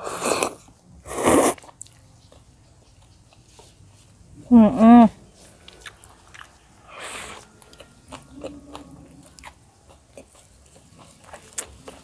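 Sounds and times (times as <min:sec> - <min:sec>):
wet chewing and mouth smacks: 0:01.4 - 0:03.9, 0:05.4 - 0:12.0.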